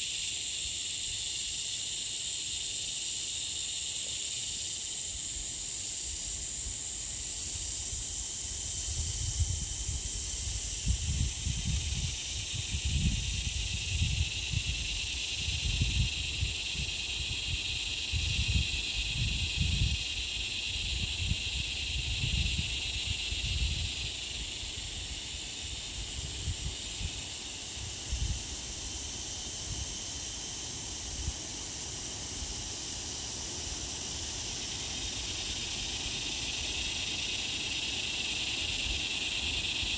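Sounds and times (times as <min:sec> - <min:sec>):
insects buzzing: 0:00.0 - 0:39.9
pulsing insect chirp: 0:00.0 - 0:39.9
wind buffeting microphone: 0:08.8 - 0:20.2, 0:20.8 - 0:24.0.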